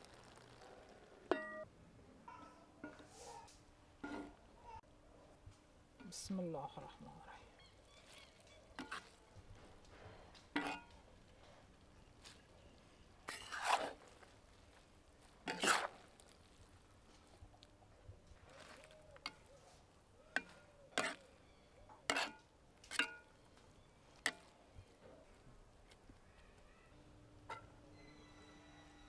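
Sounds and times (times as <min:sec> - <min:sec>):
metal skimmer scraping a pot: 0:13.3 - 0:14.0, 0:15.5 - 0:16.0, 0:22.1 - 0:23.2.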